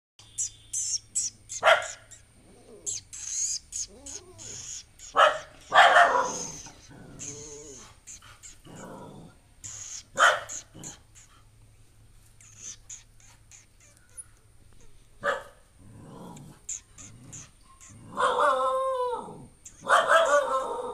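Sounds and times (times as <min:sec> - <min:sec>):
dog barking: 0:01.6 - 0:02.1, 0:05.1 - 0:06.6, 0:10.2 - 0:11.0, 0:15.2 - 0:15.6, 0:18.0 - 0:20.9.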